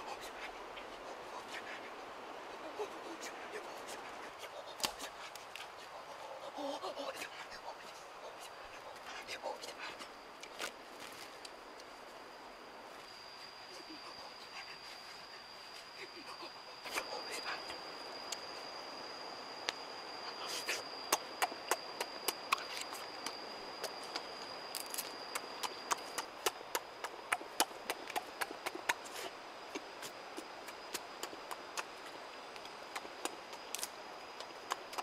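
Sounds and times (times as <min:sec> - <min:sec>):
high insect buzz: 0:00.0 - 0:35.0
fruit being peeled and chewed: 0:24.1 - 0:32.0.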